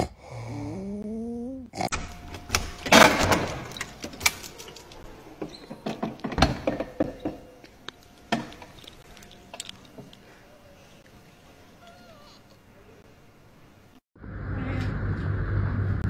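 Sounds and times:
lock and latch clicks: 0:02.3 - 0:10.2
wooden door opening: 0:02.4 - 0:07.6
key turning in door lock: 0:08.2 - 0:10.2.

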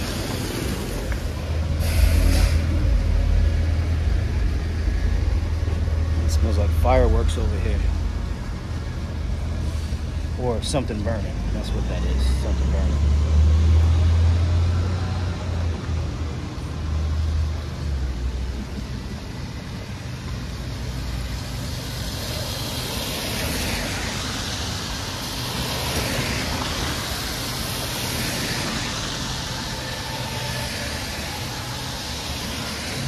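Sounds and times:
cars passing on wet pavement: 0:00.0 - 0:33.0
low engine rumble: 0:00.0 - 0:33.0.

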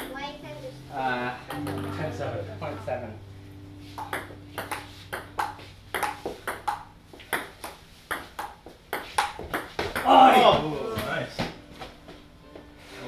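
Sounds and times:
ball bouncing on table: 0:04.0 - 0:11.6
paddle hitting ball: 0:04.0 - 0:11.6.

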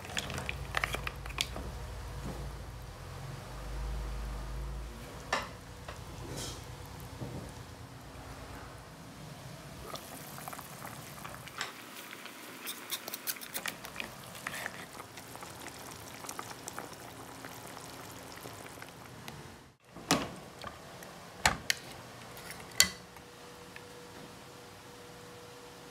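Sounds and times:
soup simmering and bubbling: 0:00.0 - 0:02.6, 0:09.7 - 0:23.8.

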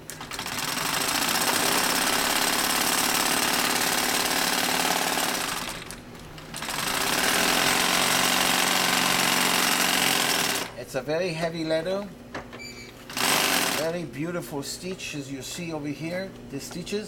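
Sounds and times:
industrial sewing machine stitching: 0:00.1 - 0:10.8, 0:13.1 - 0:13.9.

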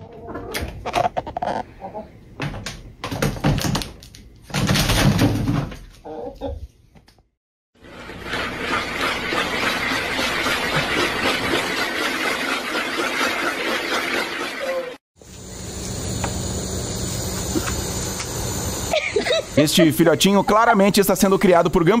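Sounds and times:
ball rolling in plastic toy: 0:00.8 - 0:01.6.

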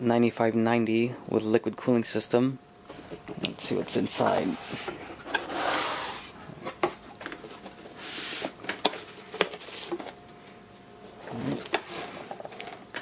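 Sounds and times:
cardboard and foam rustling: 0:03.7 - 0:10.3, 0:11.2 - 0:12.9.

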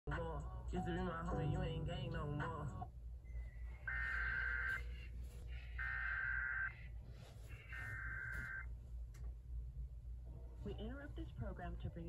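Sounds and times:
buzzy digital data tones: 0:03.8 - 0:05.0, 0:05.8 - 0:06.9, 0:07.6 - 0:08.7.

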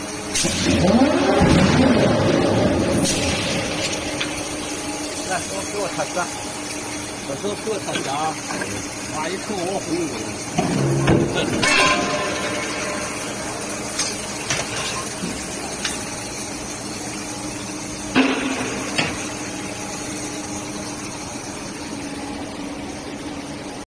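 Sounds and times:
factory machine hum: 0:00.0 - 0:23.9
metal clanks of tongs on steel: 0:10.6 - 0:12.4.

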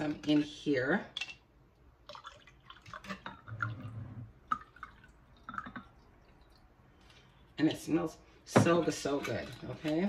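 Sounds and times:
water pouring into glass pitcher: 0:02.0 - 0:06.8.

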